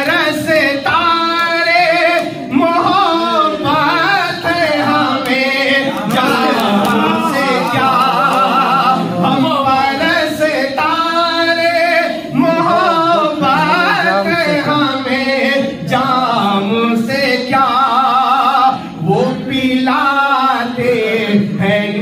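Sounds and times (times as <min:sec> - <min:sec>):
man singing unaccompanied: 0:00.0 - 0:22.0.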